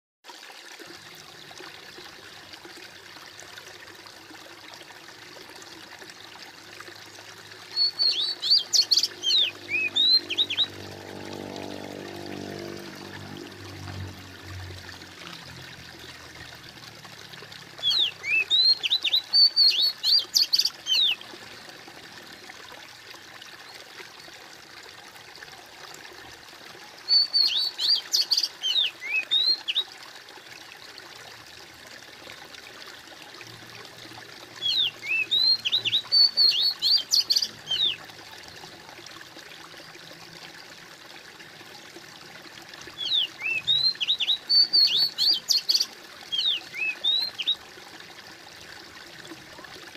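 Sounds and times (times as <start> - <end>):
trickling stream water: 0.2 - 49.9
songbird chirping: 7.7 - 13.4, 17.8 - 21.2, 27.1 - 29.8, 34.6 - 38.0, 43.0 - 47.6.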